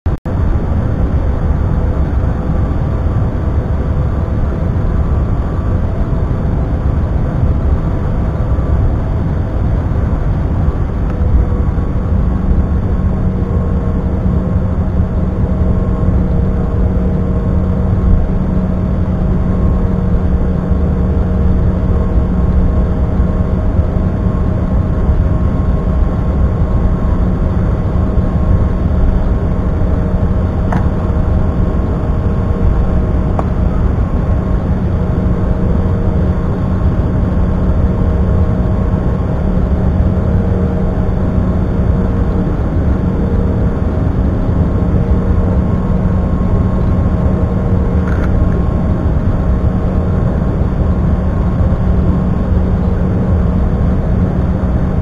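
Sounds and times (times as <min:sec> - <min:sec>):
jet engine cabin rumble: 0:00.2 - 0:55.0.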